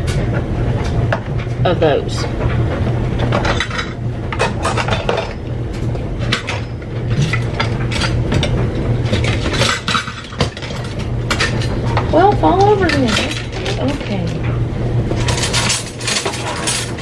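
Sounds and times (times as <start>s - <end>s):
steady low hum: 0.0s - 17.0s
metal utensils clinking: 3.3s - 5.4s, 6.2s - 14.6s, 15.2s - 17.0s.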